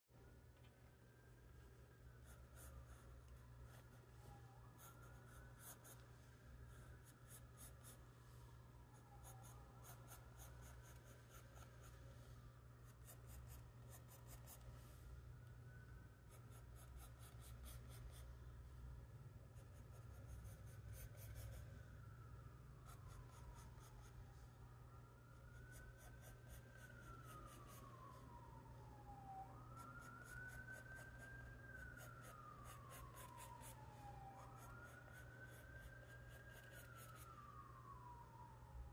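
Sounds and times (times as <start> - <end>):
low steady hum: 0.1 - 38.9
distant siren wailing: 0.2 - 38.9
pencil scratching on paper: 2.2 - 4.0, 9.2 - 12.0, 12.8 - 14.7, 16.3 - 18.2, 19.5 - 21.6.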